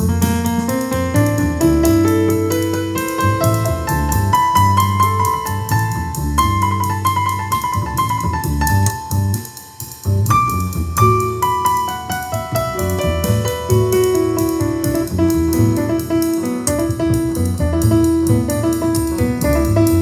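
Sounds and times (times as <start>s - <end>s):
piano-led instrumental music: 0.0s - 20.0s.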